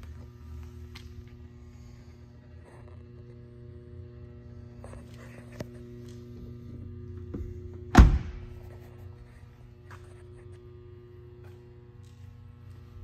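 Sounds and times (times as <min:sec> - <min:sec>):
low electrical hum: 0:00.0 - 0:13.0
car door thunk shut: 0:07.9 - 0:08.5.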